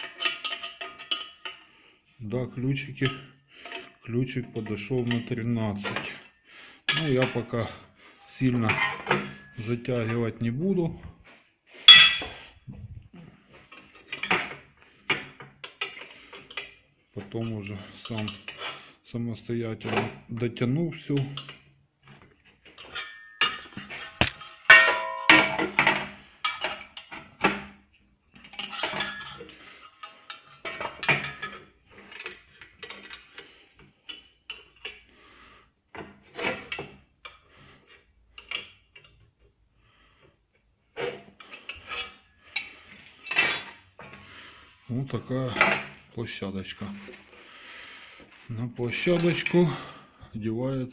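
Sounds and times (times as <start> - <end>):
metal parts and tools clanking: 0.0 - 1.7, 8.3 - 10.2, 11.9 - 12.5, 22.7 - 27.6, 28.4 - 35.0, 41.0 - 44.2
steel tools clanking on metal: 8.7 - 9.7, 11.9 - 12.4, 22.8 - 23.8, 24.6 - 25.9, 28.5 - 29.4, 30.0 - 32.3, 41.5 - 43.8
spanner clinking on metal: 11.9 - 12.4, 24.7 - 25.7.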